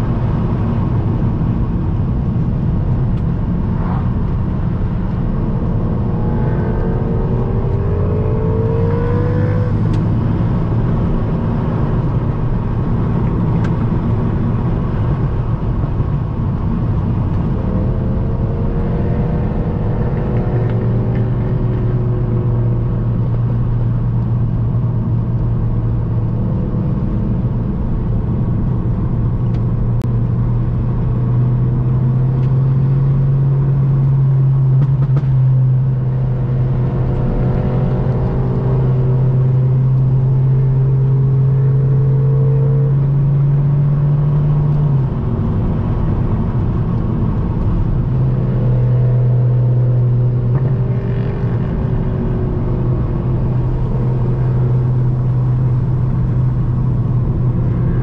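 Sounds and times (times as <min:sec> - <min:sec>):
car engine droning: 0:00.0 - 0:58.0
road noise: 0:00.0 - 0:58.0.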